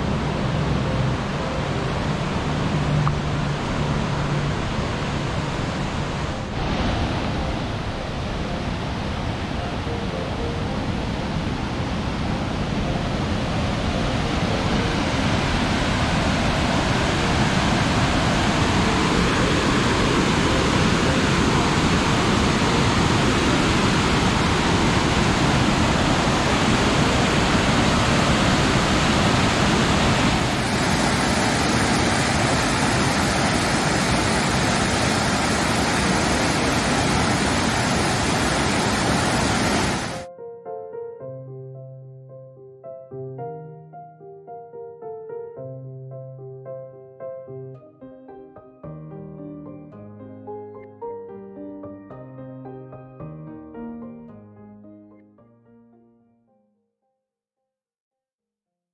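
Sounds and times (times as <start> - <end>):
rushing mountain water: 0.0 - 40.3.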